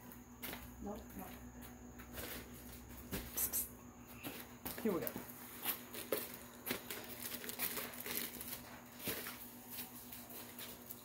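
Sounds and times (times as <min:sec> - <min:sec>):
faint steady hum: 0:00.0 - 0:11.0
plastic packaging crinkling: 0:05.6 - 0:11.0.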